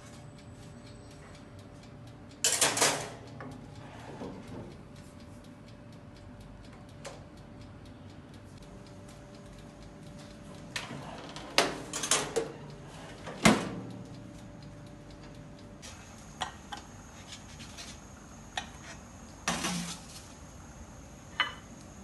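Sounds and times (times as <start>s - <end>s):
clicks and knocks on toaster oven: 2.4s - 3.2s, 10.8s - 12.6s.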